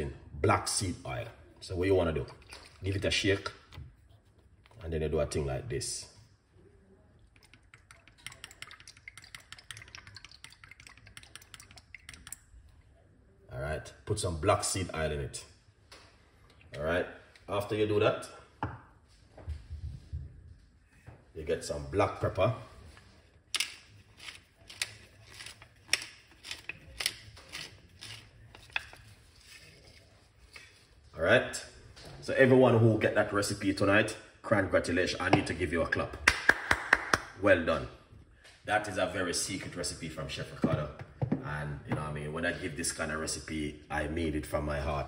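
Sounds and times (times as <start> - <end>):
pepper mill grinding: 23.6 - 29.7.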